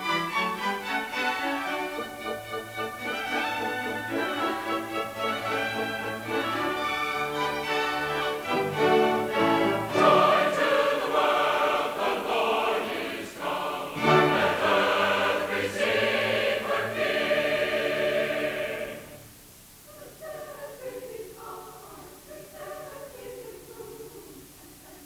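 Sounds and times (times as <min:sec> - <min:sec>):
choir singing with orchestra: 0:00.0 - 0:25.0.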